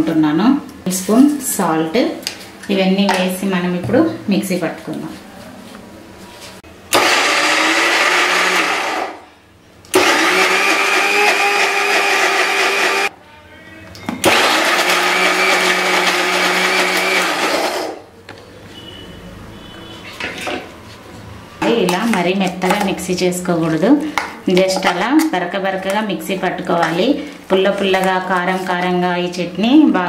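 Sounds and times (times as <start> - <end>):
electric mixer grinder pulsing: 6.9 - 9.2, 9.9 - 13.1, 14.2 - 18.0.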